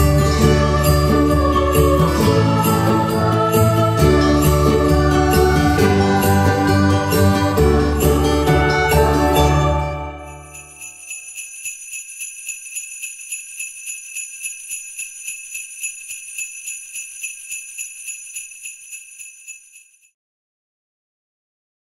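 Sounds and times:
jingle bells shaken: 0.0 - 20.1.

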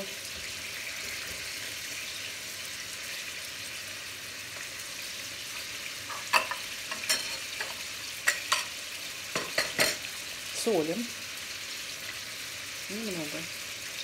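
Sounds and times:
meat sizzling in a pan: 0.0 - 14.0
metal spoon clinking on plate: 6.1 - 8.7.

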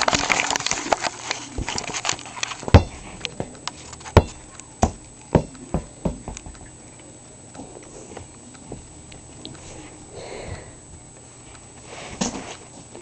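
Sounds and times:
sharp knocks and thumps: 2.6 - 6.8.

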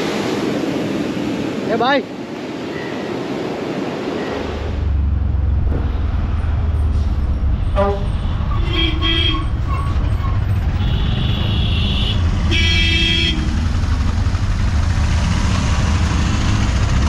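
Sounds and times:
auto-rickshaw engine rumbling: 4.8 - 17.0
vehicle horns honking: 7.7 - 13.5.

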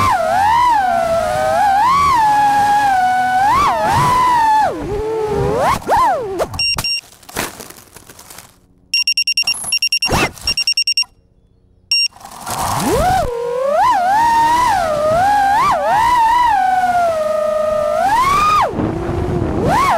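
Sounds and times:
quadcopter motors whining: 0.0 - 6.5, 12.8 - 19.9
rapid high electronic beeps: 6.6 - 7.0, 9.0 - 11.1, 11.9 - 12.1.

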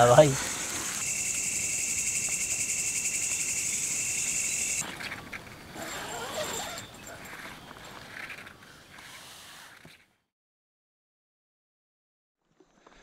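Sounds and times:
crickets trilling: 0.2 - 8.4
low insect tone: 0.4 - 8.4
short high chirps: 1.0 - 4.8.

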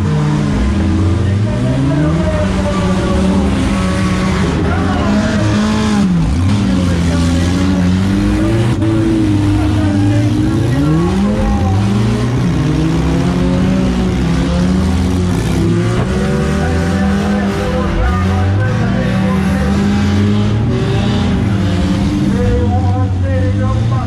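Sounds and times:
car engines revving: 0.0 - 24.0.

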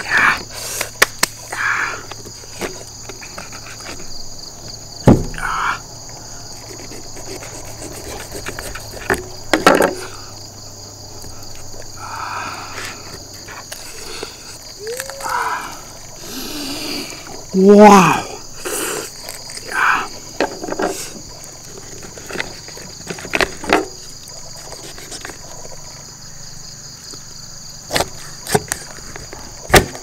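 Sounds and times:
insects chirring: 0.0 - 30.0
sharp knocks: 5.0 - 5.5.

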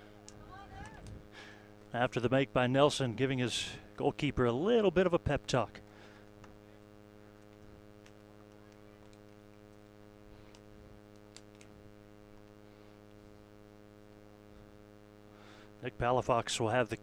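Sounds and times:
faint electrical hum: 0.0 - 17.0
faint clicks: 6.2 - 11.7.

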